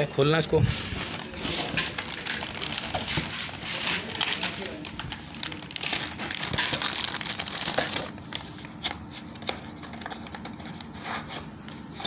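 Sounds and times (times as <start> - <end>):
plastic bag crinkling: 0.8 - 8.6.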